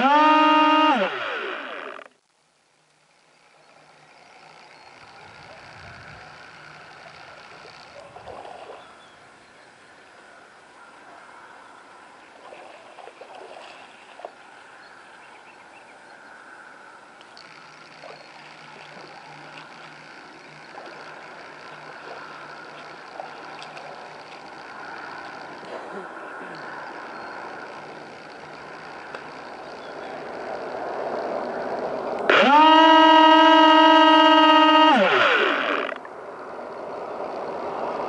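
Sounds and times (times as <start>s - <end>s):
electric motor whine: 0.0s - 8.0s, 26.7s - 38.0s
low steady hum: 0.0s - 38.0s
water sloshing and gurgling: 12.4s - 14.5s
small clicks: 17.2s - 25.8s.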